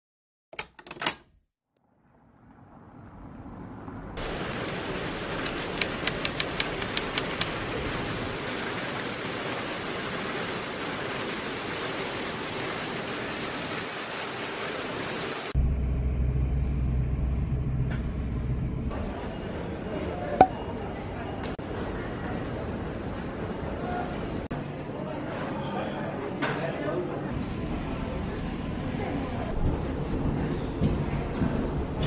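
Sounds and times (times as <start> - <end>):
typewriter key clicks: 0.6 - 1.4, 5.4 - 7.5
rushing hiss of outdoor ambience: 4.2 - 15.5.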